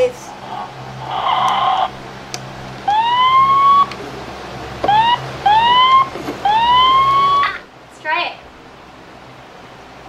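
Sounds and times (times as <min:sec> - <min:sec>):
toy fire truck siren wailing: 0:02.9 - 0:03.9, 0:04.9 - 0:07.6.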